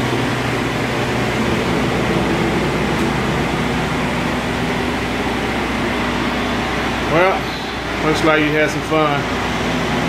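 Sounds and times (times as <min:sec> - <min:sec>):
low steady hum: 0:00.0 - 0:10.0
ventilation fan whirring: 0:00.0 - 0:10.0.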